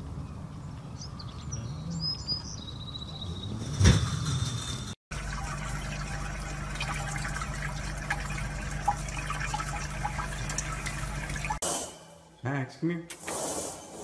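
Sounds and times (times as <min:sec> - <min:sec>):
water running from a faucet: 0:05.1 - 0:11.6.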